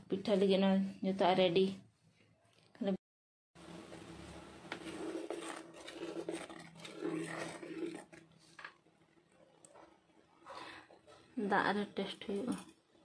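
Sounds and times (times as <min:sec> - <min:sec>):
rough grinding noise: 0:04.7 - 0:08.8.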